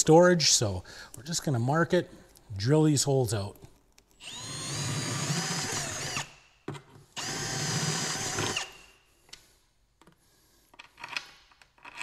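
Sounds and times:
cordless drill running: 4.2 - 6.4, 7.2 - 8.9.

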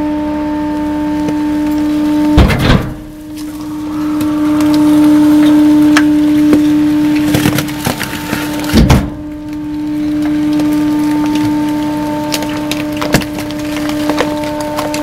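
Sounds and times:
machinery humming: 0.0 - 15.0
creaks and knocks of metal and wood: 1.2 - 15.0
heavy thump: 2.4 - 3.2, 8.7 - 9.3.

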